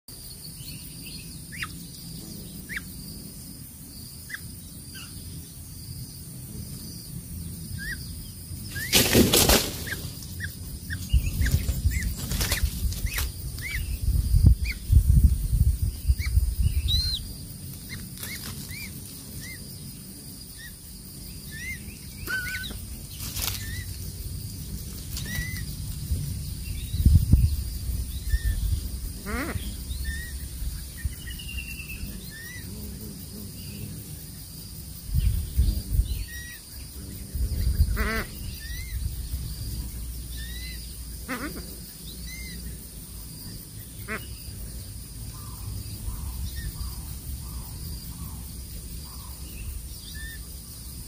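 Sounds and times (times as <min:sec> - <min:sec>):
bird wingbeats: 0:08.6 - 0:15.7, 0:17.5 - 0:19.6, 0:22.2 - 0:26.3
twigs rustling and knocking: 0:23.2 - 0:23.7.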